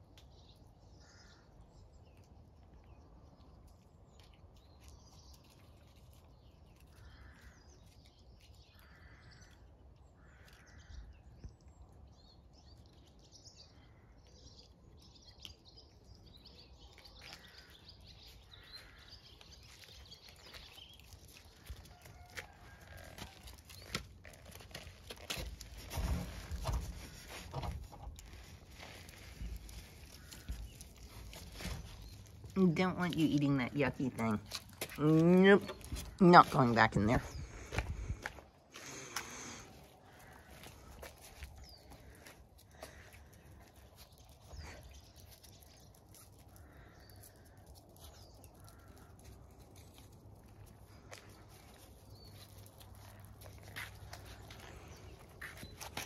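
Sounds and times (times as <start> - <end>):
puppy scrabbling in dry leaves: 18.6 - 32.8, 39.8 - 56.0.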